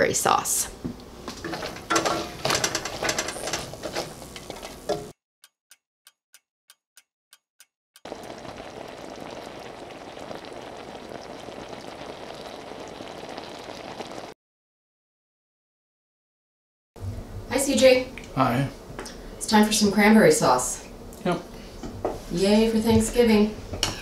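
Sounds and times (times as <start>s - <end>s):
sauce bubbling in pan: 8.1s - 14.4s.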